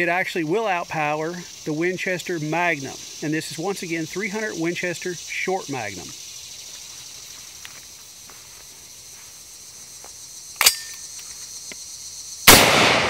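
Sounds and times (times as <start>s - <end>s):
insects droning: 0.0s - 13.0s
rifle shot: 12.5s - 13.0s.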